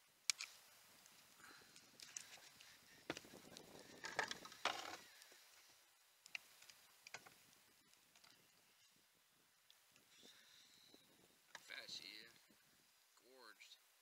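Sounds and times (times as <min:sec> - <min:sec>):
faint clicks and knocks: 0:06.2 - 0:08.9.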